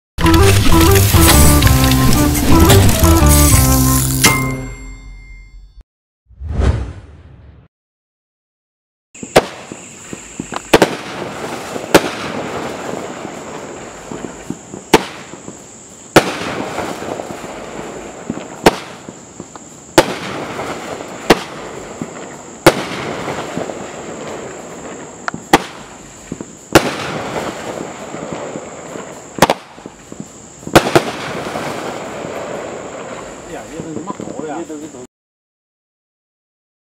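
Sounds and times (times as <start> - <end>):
fireworks hissing and crackling: 0.2 - 4.2, 9.2 - 35.1
fireworks bangs: 9.2 - 34.8.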